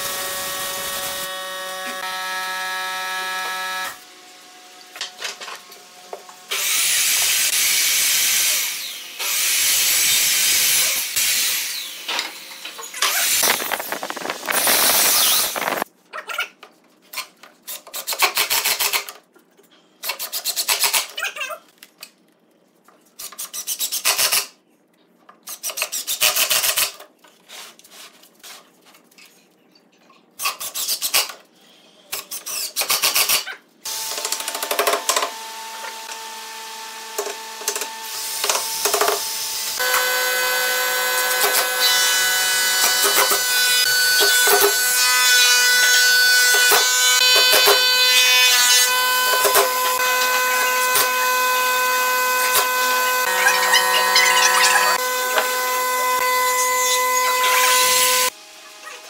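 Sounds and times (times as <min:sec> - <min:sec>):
cordless drill whirring: 0:13.0 - 0:15.8, 0:48.9 - 0:58.3.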